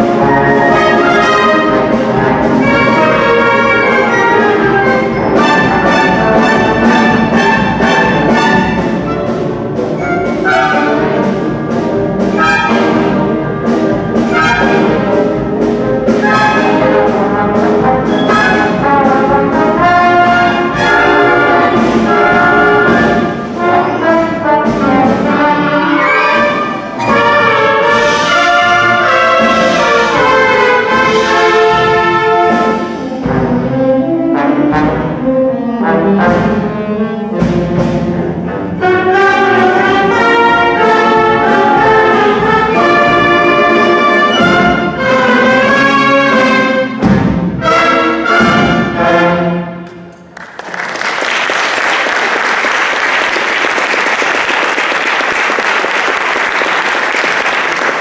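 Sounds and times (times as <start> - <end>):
concert band playing: 0.0 - 50.4
audience applauding: 50.3 - 58.0.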